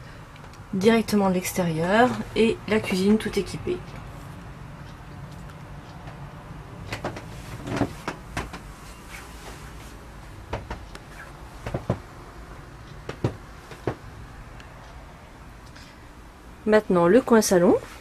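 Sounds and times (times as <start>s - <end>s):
low steady hum: 0.0s - 18.0s
light knocks and clicks: 6.9s - 8.7s, 10.5s - 12.1s, 13.0s - 14.0s.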